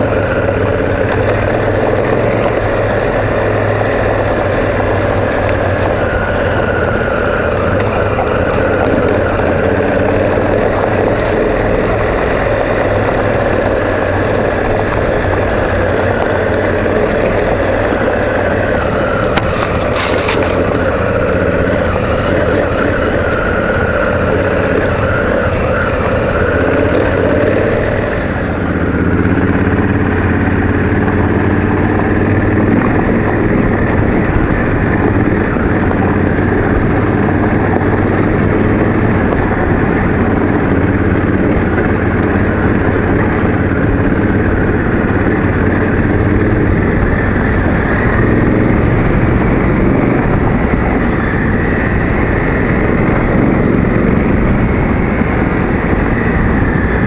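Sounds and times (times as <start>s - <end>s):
tyres crunching on gravel: 0.0s - 28.8s
motorcycle engine running: 0.0s - 57.0s
wind rush: 0.0s - 57.0s.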